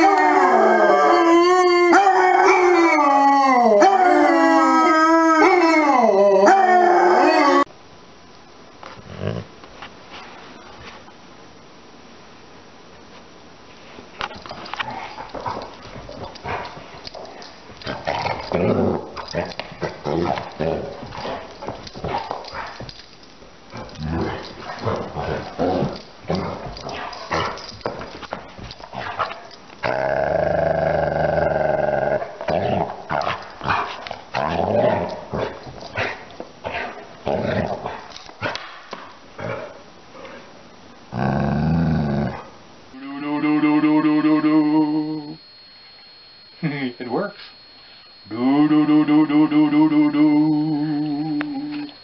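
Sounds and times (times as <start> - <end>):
dog barks and growls: 14.4 - 22.9, 23.7 - 28.0, 28.8 - 39.8.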